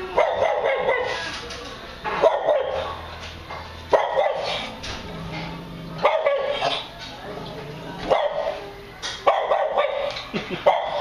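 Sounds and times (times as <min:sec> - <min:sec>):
dog barking: 0:00.2 - 0:01.2, 0:02.2 - 0:02.9, 0:03.9 - 0:04.7, 0:06.0 - 0:06.9, 0:08.1 - 0:08.6, 0:09.2 - 0:11.0.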